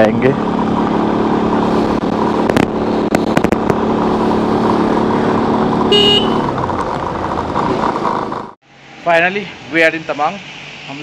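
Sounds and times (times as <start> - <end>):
motorcycle engine running: 0.0 - 8.6.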